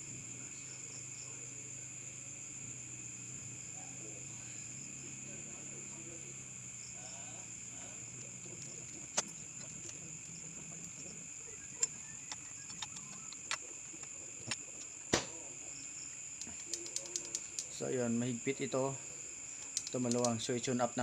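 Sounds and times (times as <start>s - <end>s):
crickets chirring: 0.0s - 21.0s
metal clicks of hand tools: 19.6s - 20.4s.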